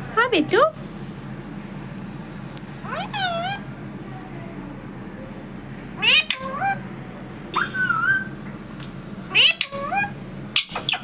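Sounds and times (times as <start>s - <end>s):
parrot high-pitched calls: 2.8s - 3.7s, 6.0s - 6.8s, 7.5s - 8.4s, 9.3s - 11.0s.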